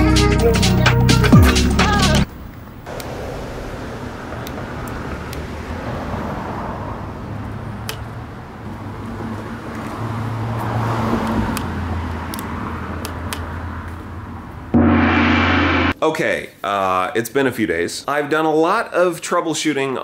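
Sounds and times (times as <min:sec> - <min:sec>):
road traffic: 0:02.3 - 0:14.9
vehicle passing: 0:03.1 - 0:07.8.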